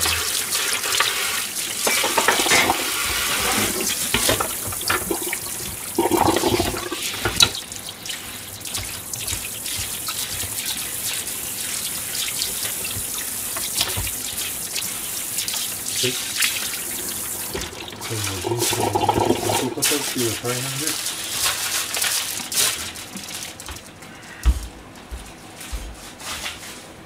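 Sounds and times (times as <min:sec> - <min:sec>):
crockery clattering: 0:01.8 - 0:05.4
tap running into metal sink: 0:01.8 - 0:10.9, 0:12.2 - 0:14.3, 0:16.5 - 0:20.4
sponge scrubbing cutting board: 0:17.8 - 0:22.8, 0:25.6 - 0:27.0.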